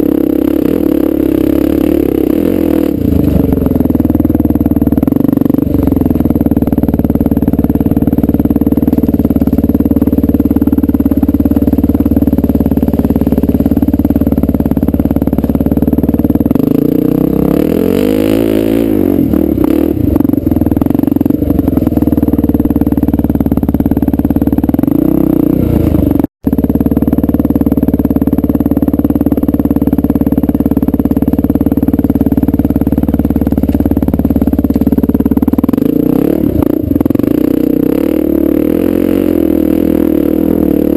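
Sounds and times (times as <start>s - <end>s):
motorcycle engine running: 0.0s - 40.9s.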